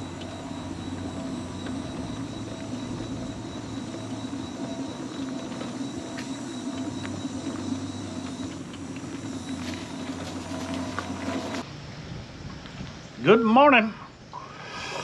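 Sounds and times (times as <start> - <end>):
faint ticks and clicks: 0.0 - 11.4
mobility scooter motor humming: 0.0 - 13.0.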